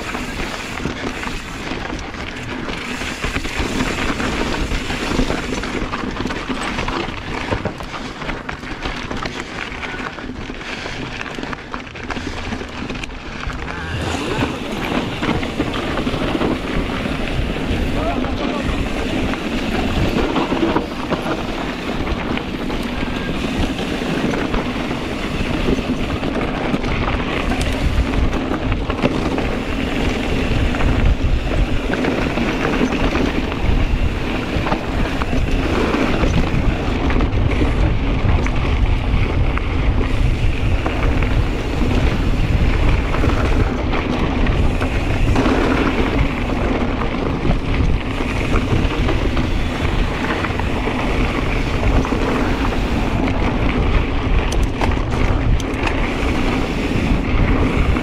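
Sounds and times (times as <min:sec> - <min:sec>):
bike knocks and rattles: 0:00.0 - 0:58.0
bike tyre noise on dirt: 0:00.0 - 0:58.0
wind rumbling on microphone: 0:00.0 - 0:58.0.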